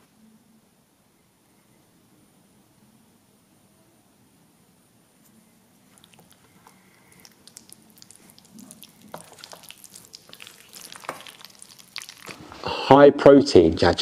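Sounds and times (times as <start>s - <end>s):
chopsticks mixing sticky noodles: 5.8s - 12.7s.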